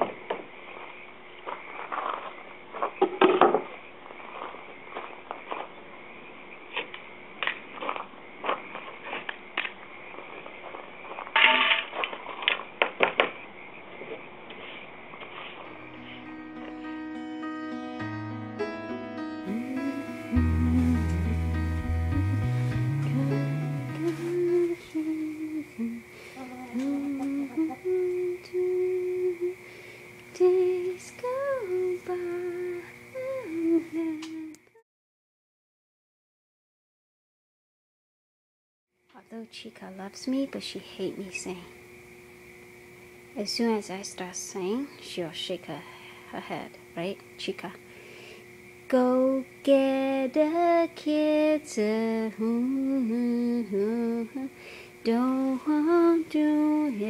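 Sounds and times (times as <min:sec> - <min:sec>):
woman humming: 0:19.4 - 0:29.6, 0:30.4 - 0:34.8.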